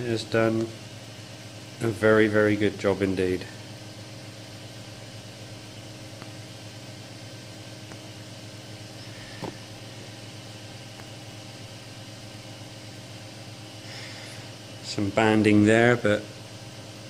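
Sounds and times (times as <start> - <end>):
cooling fans humming: 0.0 - 17.0.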